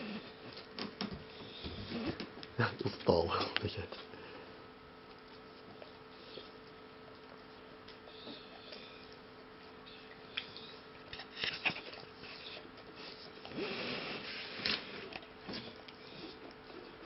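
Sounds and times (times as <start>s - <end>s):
dog sniffing breaths: 8.0s - 17.0s.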